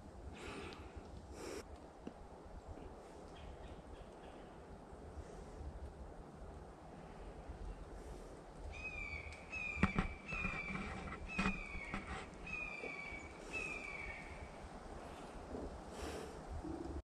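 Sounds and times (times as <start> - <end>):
bird calling: 8.7 - 15.3.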